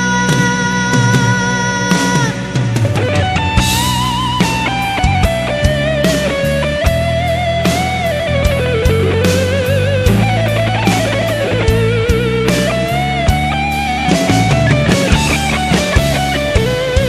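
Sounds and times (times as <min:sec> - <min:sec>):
bass: 0:00.0 - 0:17.0
lead guitar melody with vibrato: 0:00.0 - 0:17.0
steady drum beat: 0:00.0 - 0:17.0.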